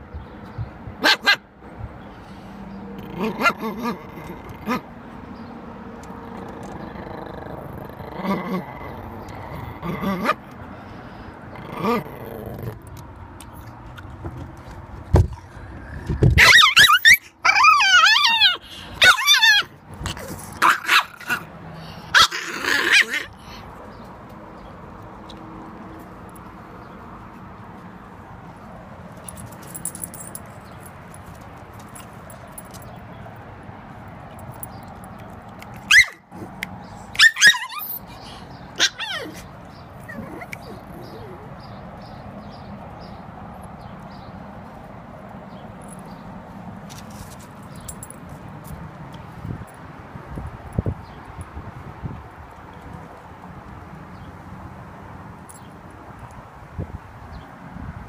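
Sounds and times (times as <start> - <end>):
small dog yapping: 1.0 - 1.4, 3.1 - 4.8, 16.4 - 21.5, 22.1 - 23.3, 35.9 - 36.2, 37.2 - 38.0, 38.8 - 41.5
small dog growling: 3.0 - 4.8, 6.3 - 10.4, 11.5 - 12.9, 40.0 - 41.5.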